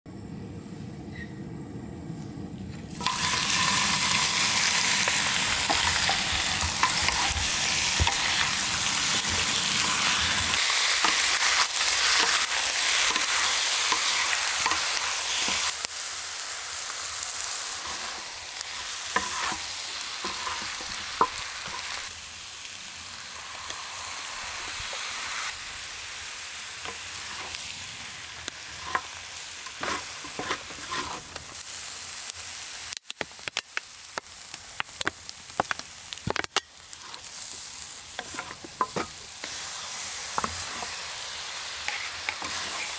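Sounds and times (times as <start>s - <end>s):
chicken sizzling in hot oil: 2.9s - 42.9s
wooden spatula scraping and knocking: 19.1s - 19.6s, 28.8s - 31.4s, 38.2s - 39.6s.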